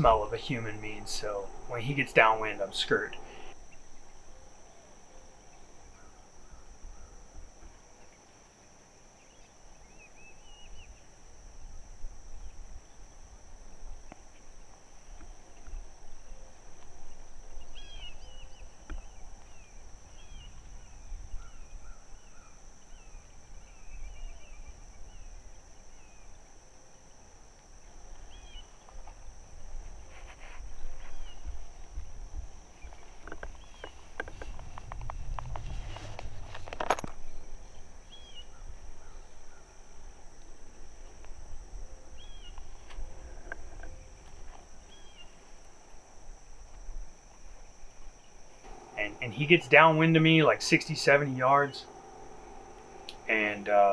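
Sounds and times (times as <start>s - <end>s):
birds calling: 0.0s - 3.6s, 48.7s - 53.9s
high-pitched insect drone: 0.0s - 4.4s, 48.6s - 53.9s.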